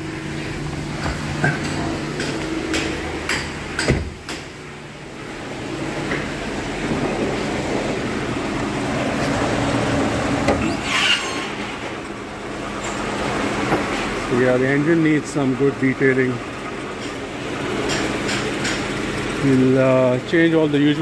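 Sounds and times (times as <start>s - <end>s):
car engine idling: 0.0s - 10.7s, 11.5s - 21.0s
sharp clicks and knocks: 1.0s - 4.6s, 17.8s - 18.9s.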